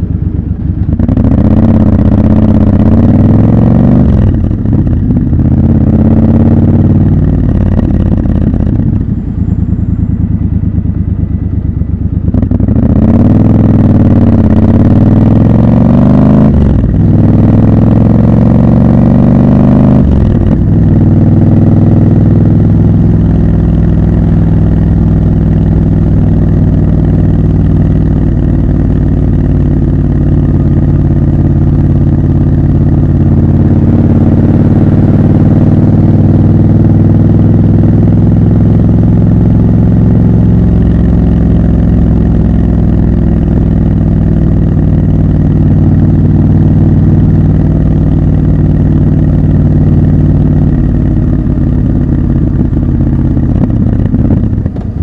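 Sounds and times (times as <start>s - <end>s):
motorcycle engine cruising: 0.0s - 55.0s.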